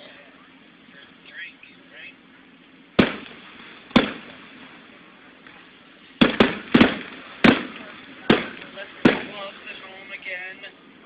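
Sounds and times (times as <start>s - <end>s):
firework bangs: 2.9s - 10.2s.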